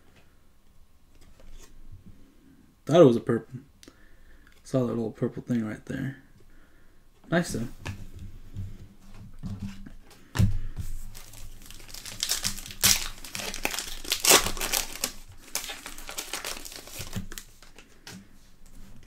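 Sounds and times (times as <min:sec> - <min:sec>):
foil wrapper crinkling: 0:11.0 - 0:17.9
cards rustling: 0:11.0 - 0:18.2.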